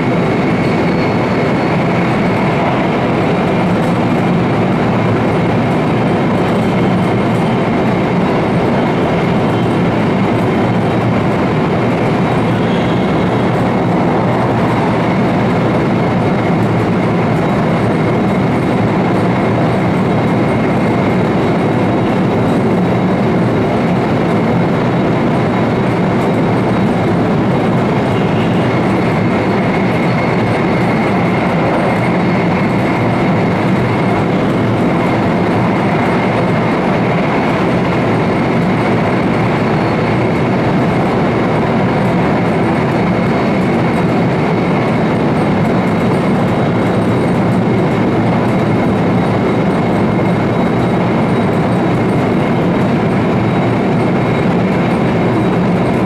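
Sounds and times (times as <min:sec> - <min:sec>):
train running rumble: 0:00.0 - 0:56.0.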